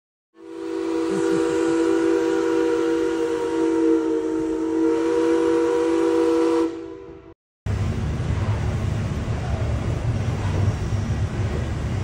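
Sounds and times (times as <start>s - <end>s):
steam hissing: 0.4s - 3.9s, 8.3s - 12.0s
steam whistle chord: 0.4s - 7.3s.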